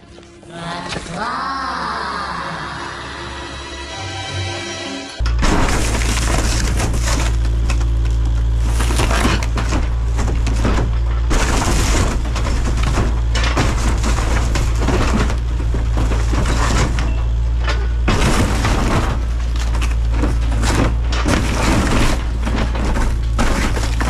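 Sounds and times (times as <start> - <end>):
diesel engine under load: 2.1 - 24.0
metal crunching and tearing: 5.2 - 24.0.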